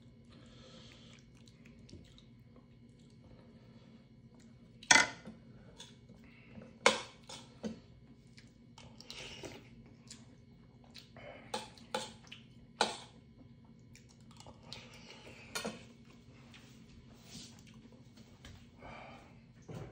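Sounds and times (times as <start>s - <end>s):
chewing: 0.8s - 3.4s, 8.1s - 16.6s, 17.6s - 18.0s.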